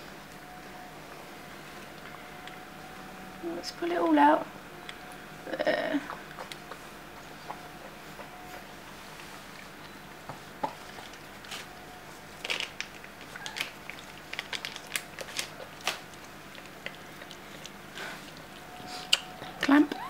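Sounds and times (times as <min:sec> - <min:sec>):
dog licking and chewing puppy: 0:06.1 - 0:11.6, 0:12.9 - 0:20.0.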